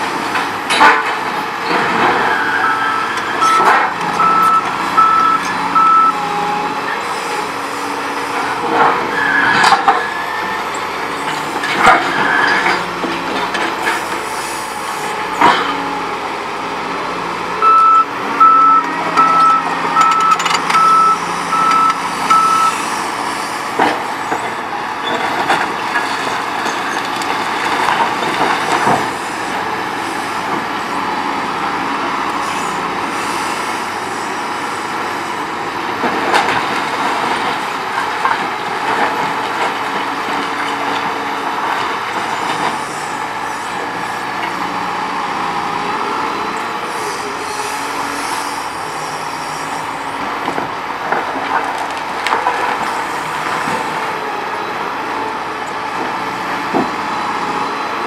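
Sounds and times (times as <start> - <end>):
excavator engine running: 0.0 - 58.0
motion alarm beeps: 2.6 - 6.2, 17.6 - 22.8.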